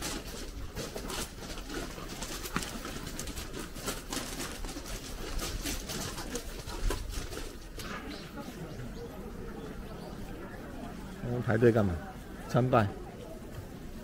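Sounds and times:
birds calling: 5.9 - 14.0.

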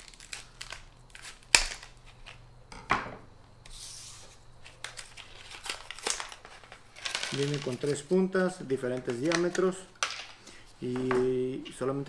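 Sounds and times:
plastic rustling: 0.0 - 2.4, 4.6 - 11.4.

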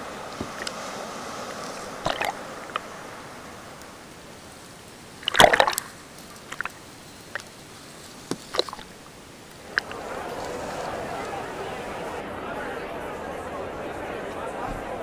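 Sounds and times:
seawater sloshing and splashing: 0.0 - 9.0
surf wash: 0.0 - 12.7.

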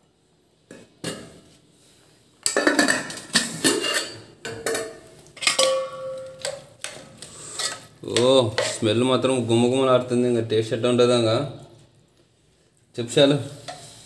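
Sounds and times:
steel plates and pots clattering: 2.5 - 8.8
steel lid ringing: 5.4 - 6.5.

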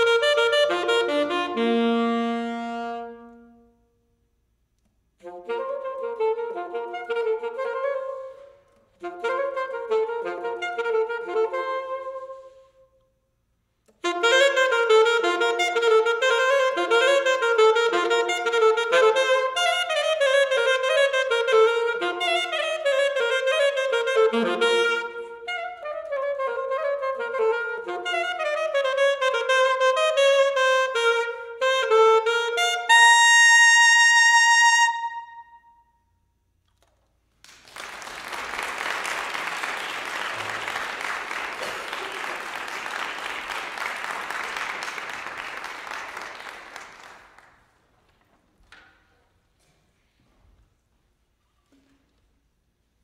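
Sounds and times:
alto saxophone playing: 0.0 - 4.5, 5.1 - 37.0, 37.7 - 47.6
audience applause: 37.4 - 47.7.

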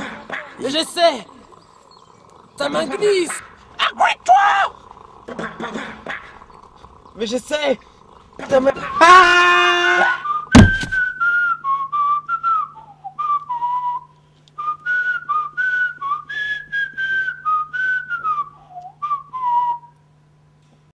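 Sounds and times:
steady low hum: 0.0 - 20.9
person whistling a tune: 10.3 - 20.0
loud thump: 10.5 - 11.1.

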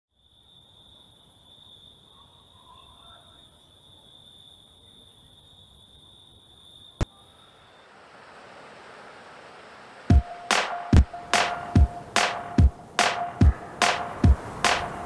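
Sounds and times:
crickets trilling: 0.1 - 8.4
soft hiss: 7.0 - 15.0.

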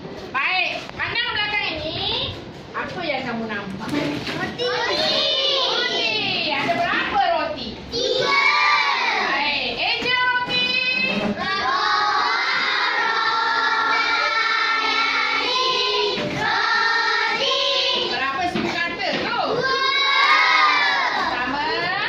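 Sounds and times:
children singing in unison: 11.1 - 18.1, 19.6 - 21.3.

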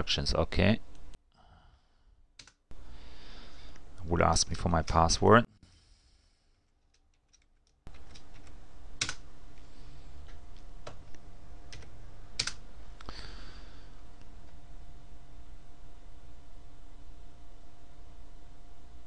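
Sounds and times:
low background hum and hiss: 0.0 - 19.0
computer keyboard keystrokes: 7.1 - 9.2, 11.7 - 12.6.

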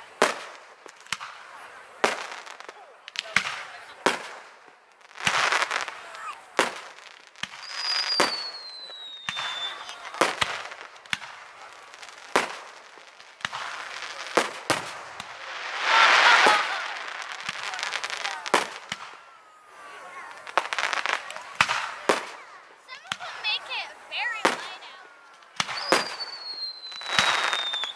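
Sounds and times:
fireworks bursting: 0.0 - 27.9
descending firework whistle: 7.5 - 10.5, 13.8 - 22.4, 24.3 - 27.9.

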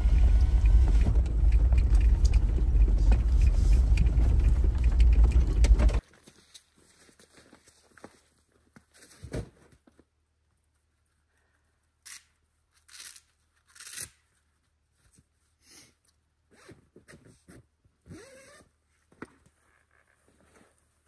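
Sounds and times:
zipper pulled open: 18.1 - 18.7.

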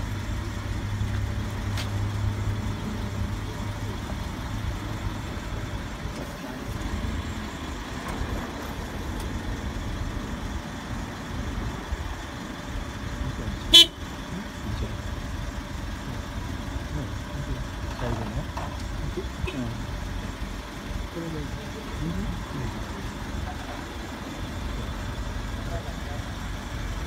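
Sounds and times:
forklift engine rumbling: 0.0 - 27.0
forklift horn beep: 13.7 - 14.2.

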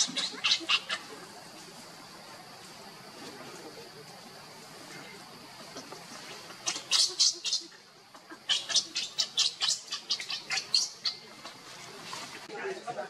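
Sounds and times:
baby monkey squealing: 0.0 - 1.0, 6.6 - 7.6, 8.4 - 11.2.

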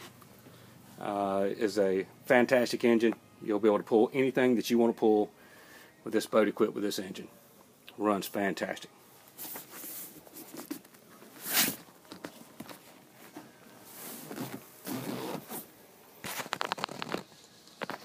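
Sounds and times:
handling rustles and knocks: 9.3 - 18.0.

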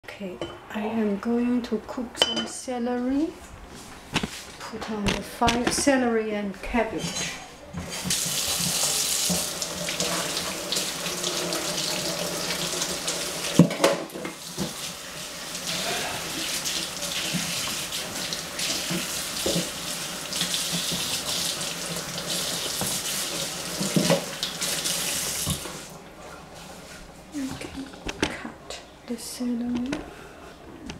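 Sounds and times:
tap running into a sink: 7.8 - 14.8, 17.1 - 25.8.

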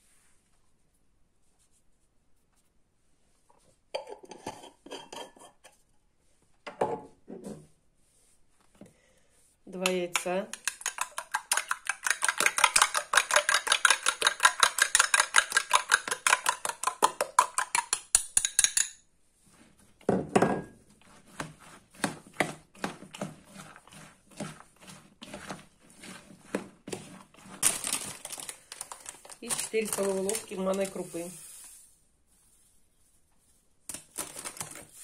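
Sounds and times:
fork stirring in plastic bowl: 9.8 - 18.8, 20.8 - 35.0.

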